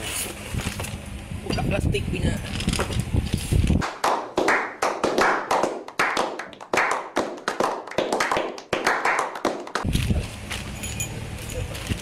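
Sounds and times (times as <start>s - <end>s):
people clapping: 3.8s - 9.9s.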